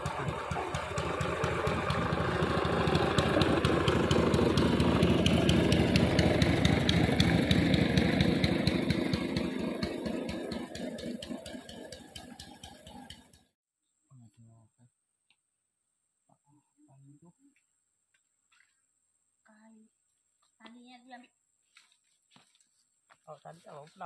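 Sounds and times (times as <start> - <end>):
boat motor passing: 0.0 - 13.5.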